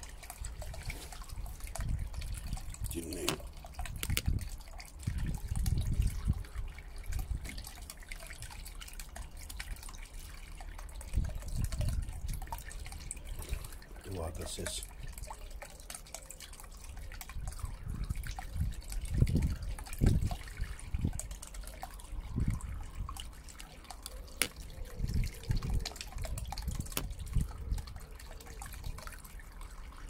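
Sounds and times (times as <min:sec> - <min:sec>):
fountain pump water bubbling: 0:00.0 - 0:30.0
low water splashes: 0:00.4 - 0:05.1.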